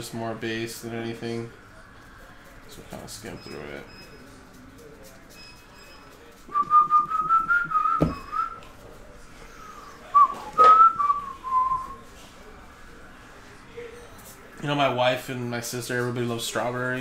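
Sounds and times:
person whistling a tune: 0:06.5 - 0:08.6.

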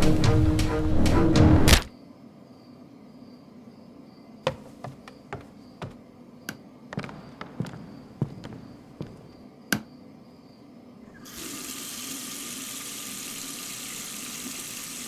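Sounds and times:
footsteps on wooden floor: 0:04.5 - 0:09.9
water running into sink: 0:11.2 - 0:15.0.

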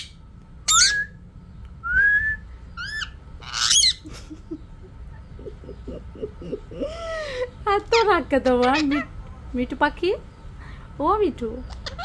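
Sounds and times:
parakeet squawking: 0:00.0 - 0:01.1, 0:02.7 - 0:04.0, 0:07.7 - 0:09.2, 0:11.5 - 0:12.0.

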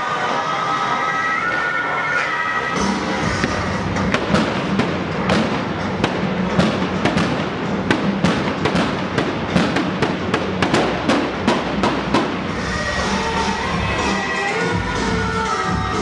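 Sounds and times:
pyrotechnic bangs: 0:02.8 - 0:13.2
steady din: 0:02.8 - 0:15.0.

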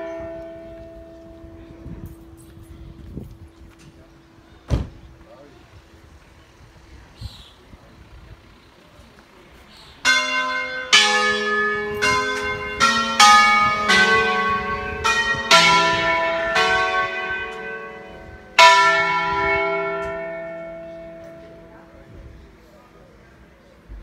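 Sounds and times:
church bells ringing: 0:00.0 - 0:04.5, 0:10.0 - 0:22.1.

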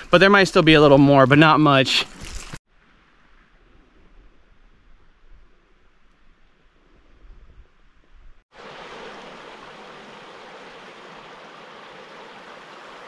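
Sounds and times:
creek rushing: 0:08.5 - 0:13.0.

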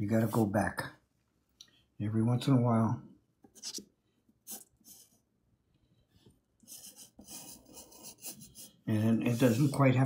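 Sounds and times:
pencil scratching on paper: 0:03.5 - 0:03.8, 0:06.6 - 0:10.0.

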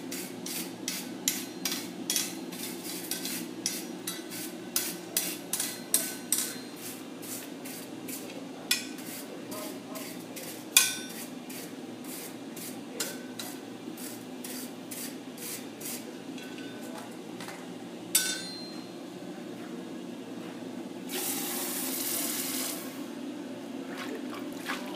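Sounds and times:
steady low hum: 0:00.0 - 0:21.2
hammer striking iron on anvil: 0:01.2 - 0:02.4, 0:03.1 - 0:06.7, 0:18.2 - 0:18.8.

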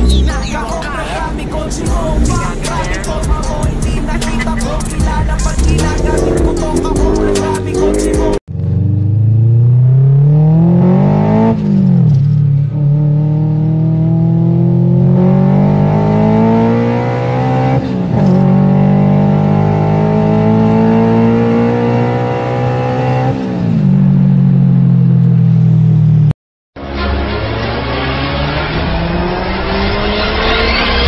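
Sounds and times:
car engine accelerating through gears: 0:00.0 - 0:25.6, 0:26.8 - 0:31.0.

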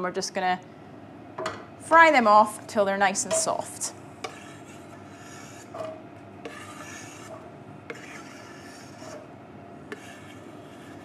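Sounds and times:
knife scraping on wooden board: 0:04.2 - 0:11.0.

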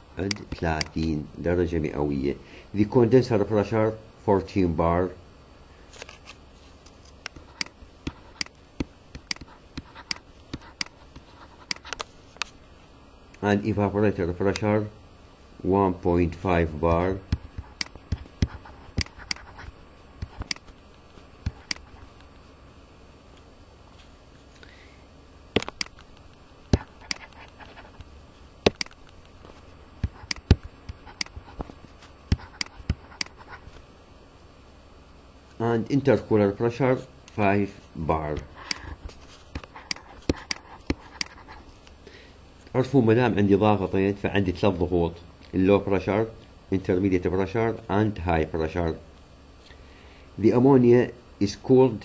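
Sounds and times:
faint hiss: 0:00.0 - 0:52.0
stylus tapping on tablet screen: 0:07.3 - 0:12.0, 0:17.3 - 0:20.7, 0:26.7 - 0:27.8, 0:28.6 - 0:29.3, 0:30.0 - 0:31.7, 0:32.3 - 0:33.4, 0:39.5 - 0:41.4.

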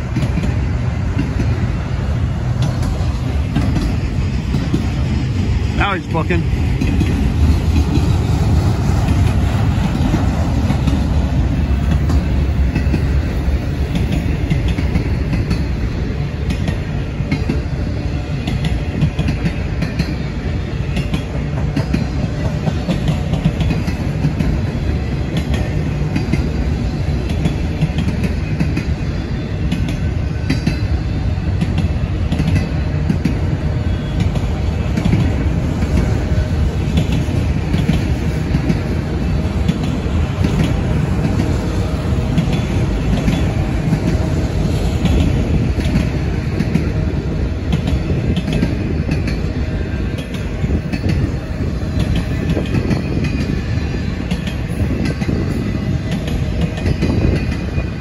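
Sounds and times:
freight train rolling past: 0:00.0 - 0:58.0
clicks of wheels and couplers: 0:25.3 - 0:26.5, 0:31.6 - 0:33.4, 0:47.7 - 0:49.5, 0:50.2 - 0:51.3, 0:52.0 - 0:53.5, 0:54.3 - 0:55.5.

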